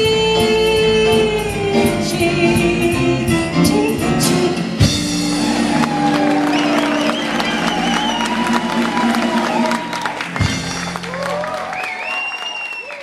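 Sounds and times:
woman singing: 0.0s - 4.6s
jazz trio playing: 0.0s - 11.6s
audience cheering: 5.1s - 13.0s.

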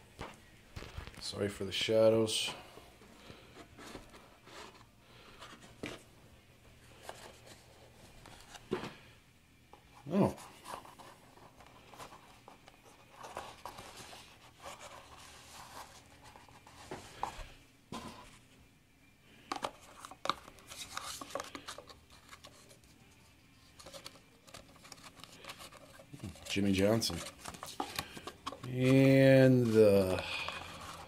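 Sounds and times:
cardboard and paper rustling: 10.1s - 18.4s, 19.5s - 23.0s, 23.6s - 31.0s.

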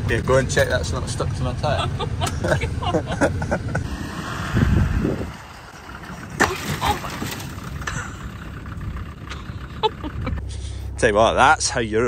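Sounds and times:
car engine driving past: 3.7s - 9.6s.

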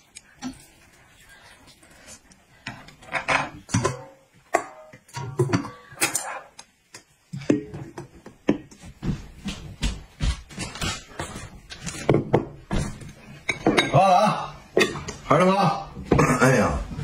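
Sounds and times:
metal basins clanking: 2.8s - 6.6s.

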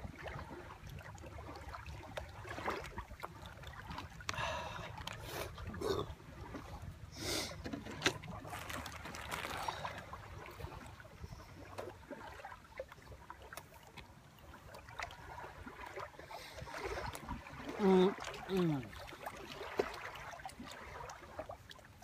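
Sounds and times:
clicks and rustles of food handling: 8.0s - 9.8s.

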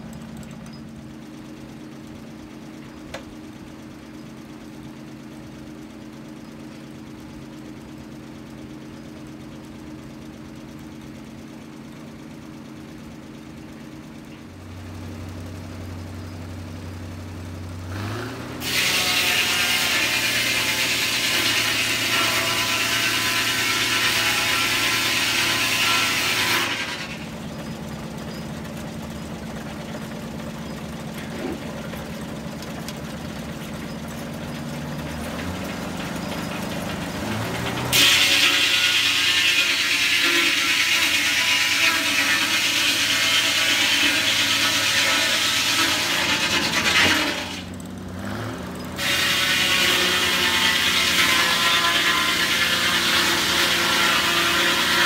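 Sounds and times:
engine running: 0.0s - 55.0s
circular saw cutting log: 17.9s - 55.0s.

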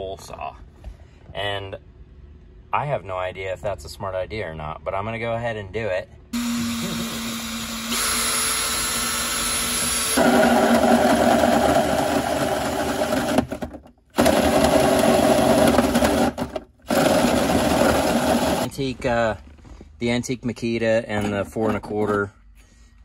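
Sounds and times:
drill hole saw cutting metal: 6.4s - 18.7s.

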